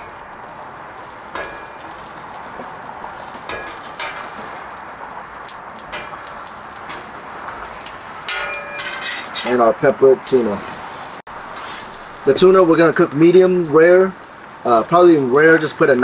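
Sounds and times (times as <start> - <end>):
asparagus sizzling in oil: 0.0 - 16.0
metal spatula scraping griddle: 1.1 - 5.1, 5.9 - 9.7, 10.3 - 12.0.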